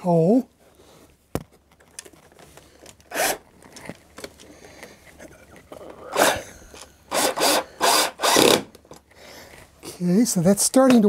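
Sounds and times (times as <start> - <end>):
cordless drill driving screw: 3.1 - 3.4, 6.1 - 6.5, 7.1 - 8.8.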